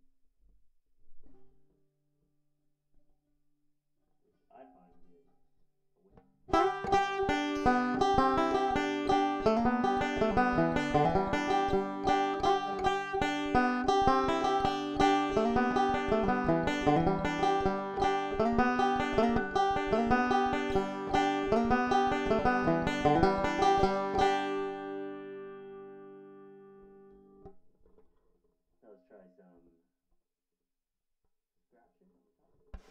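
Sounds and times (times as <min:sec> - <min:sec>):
banjo fingerpicked rolls: 0:06.5 - 0:27.5.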